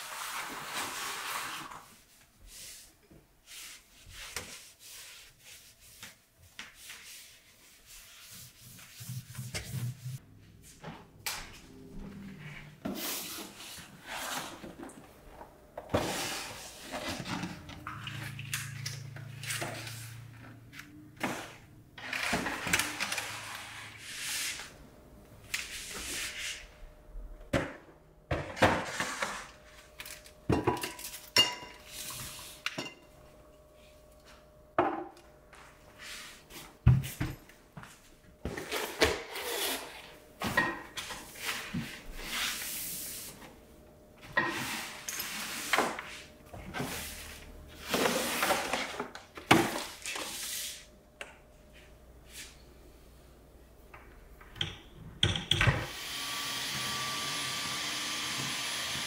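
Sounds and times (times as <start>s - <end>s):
items knocking and rustling: 27.5s - 31.8s.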